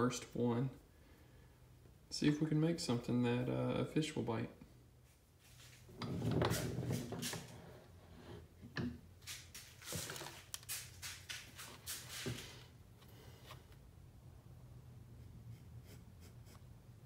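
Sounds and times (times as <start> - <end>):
rustling: 9.2 - 13.8
pencil scratching on wood: 15.2 - 16.7.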